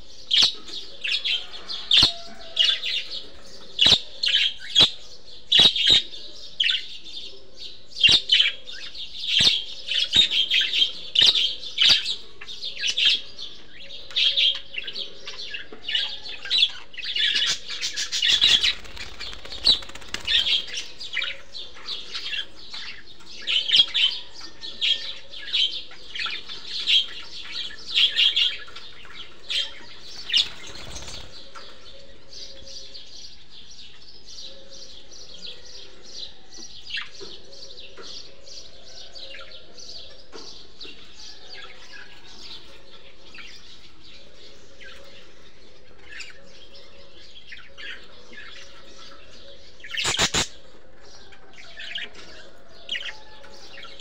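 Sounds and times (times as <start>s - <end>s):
budgerigars chirping and chattering: 0.0s - 54.0s
sharp bird clicks: 50.0s - 50.5s.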